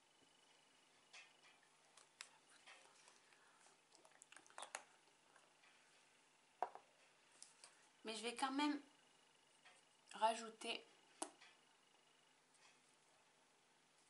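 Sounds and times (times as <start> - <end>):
lip smacks: 2.0 - 5.5.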